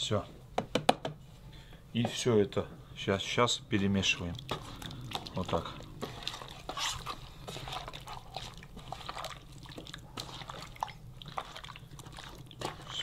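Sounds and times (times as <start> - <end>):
wet squishes of mixing meat: 3.7 - 13.0.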